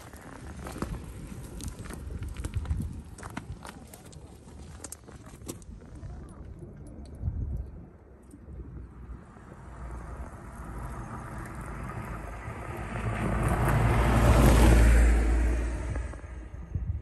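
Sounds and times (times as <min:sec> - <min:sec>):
small truck approaching: 0:09.0 - 0:16.9.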